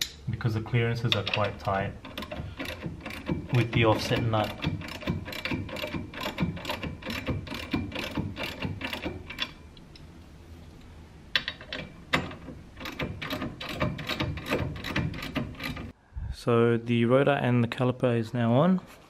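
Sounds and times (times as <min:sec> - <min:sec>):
socket ratchet clicking: 0:01.1 - 0:09.6, 0:11.4 - 0:15.9.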